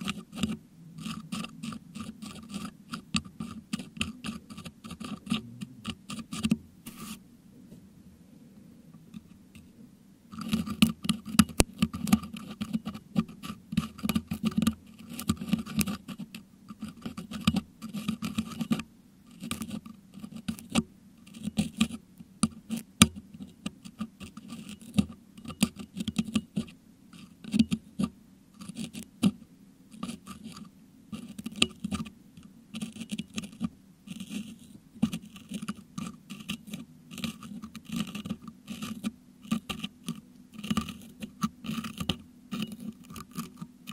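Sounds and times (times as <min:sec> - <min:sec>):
metal hook scraping microphone grille: 0:00.0 - 0:07.2, 0:30.0 - 0:43.9.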